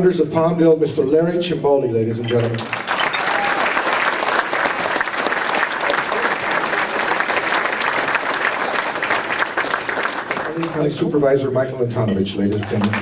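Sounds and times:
audience applauding: 2.4s - 11.2s, 12.5s - 13.0s.

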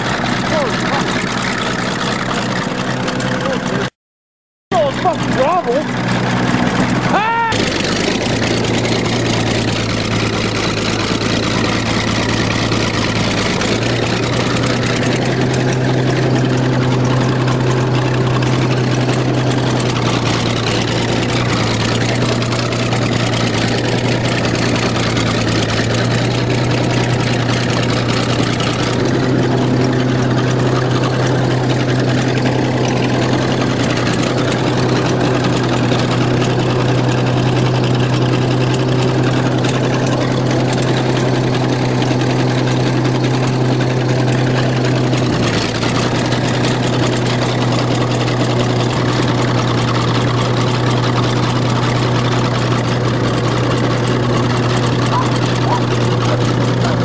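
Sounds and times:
vehicle engine running: 0.0s - 3.9s, 4.7s - 57.0s.

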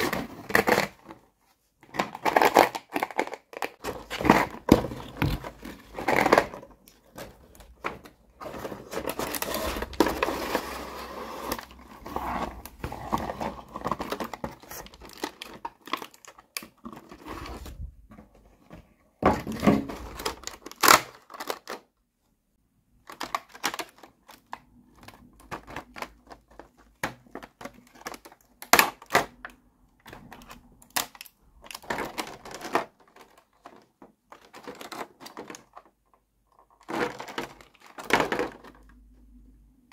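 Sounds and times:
plastic packaging crinkling: 1.8s - 17.8s, 19.4s - 21.9s
cardboard box opened: 3.8s - 15.6s, 16.8s - 18.5s.

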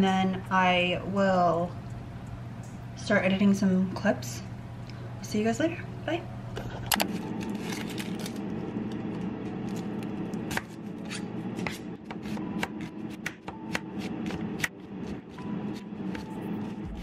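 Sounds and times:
knife slicing onion on board: 10.5s - 17.0s.

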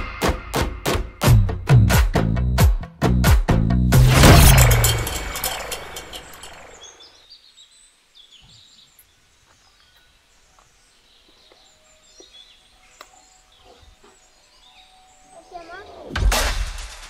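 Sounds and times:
faint bird chirps: 6.7s - 16.1s.

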